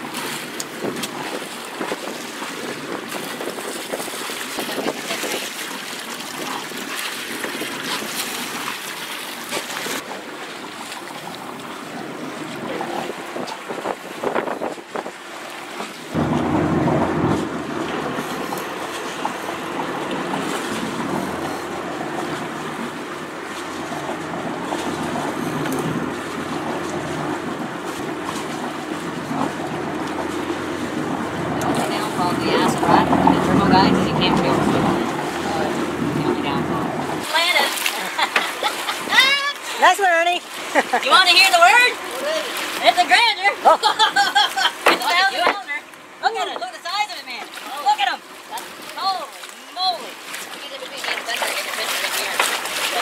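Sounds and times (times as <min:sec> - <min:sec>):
wind on microphone: 0:00.0 - 0:08.7, 0:11.3 - 0:37.3
boat engine running: 0:00.0 - 0:53.0
water splashing: 0:00.0 - 0:53.0.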